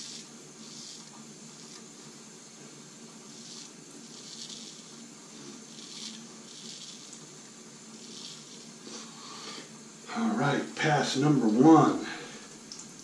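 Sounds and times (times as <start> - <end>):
razor scraping stubble: 0.0 - 2.1, 3.2 - 7.3, 7.9 - 9.5.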